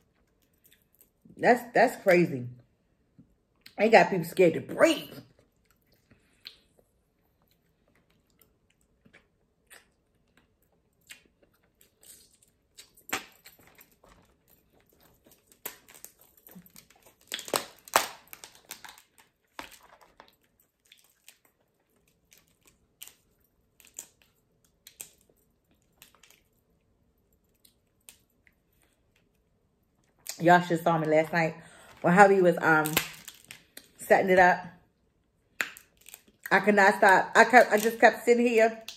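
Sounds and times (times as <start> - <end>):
close-up chewing: 5.3 - 29.4
crab shells cracking: 11.0 - 26.5, 32.8 - 34.0, 35.5 - 36.4.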